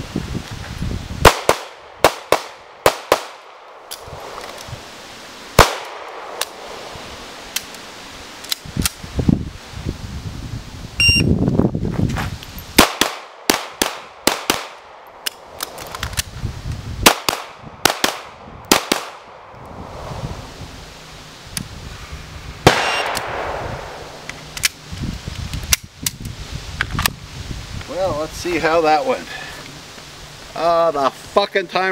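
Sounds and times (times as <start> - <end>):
pistol shots: 1.2 - 3.6, 5.6 - 6.6, 12.8 - 14.8, 17.0 - 19.3, 22.6 - 24.2.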